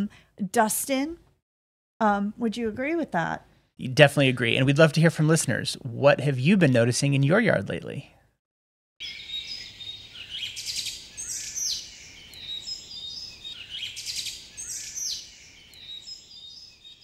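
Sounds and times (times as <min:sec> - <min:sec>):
songbirds chirping and singing: 0:09.0 - 0:17.0.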